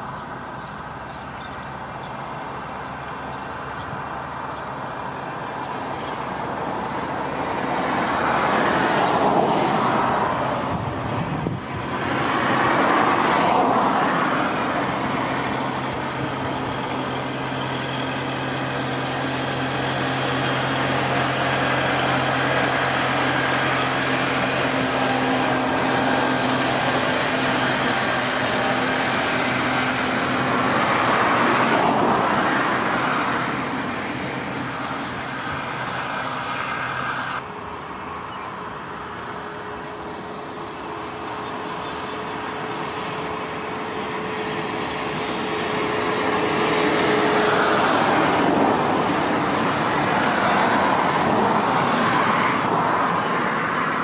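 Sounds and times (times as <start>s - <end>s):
diesel engines running: 0.0s - 54.0s.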